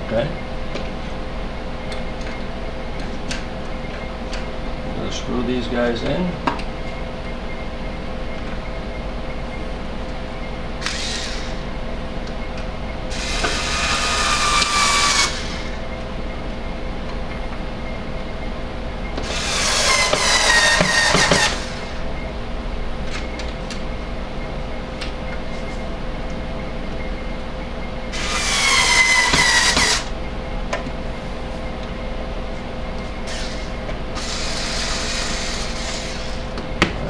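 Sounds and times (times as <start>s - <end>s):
electric screwdriver whining: 10.8s - 11.6s, 13.1s - 15.8s, 19.2s - 22.0s, 28.1s - 30.1s, 33.3s - 36.4s.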